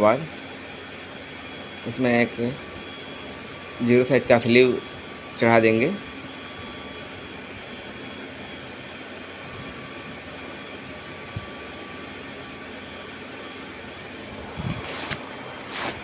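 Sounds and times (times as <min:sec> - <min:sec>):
mechanical drone: 0:01.3 - 0:16.0
wire rustling: 0:14.7 - 0:16.0.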